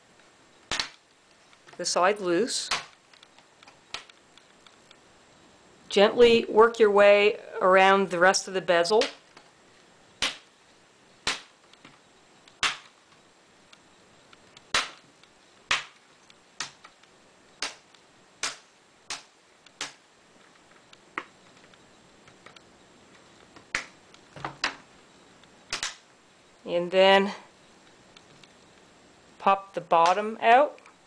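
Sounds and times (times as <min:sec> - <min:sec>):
plastic clips popping loose: 0:25.7 - 0:26.0.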